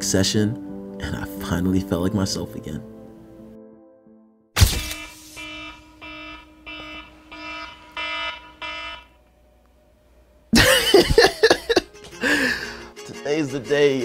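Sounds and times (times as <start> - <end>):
loud sudden noise: 4.6 - 6.0
phone alarm chimes: 4.9 - 9.1.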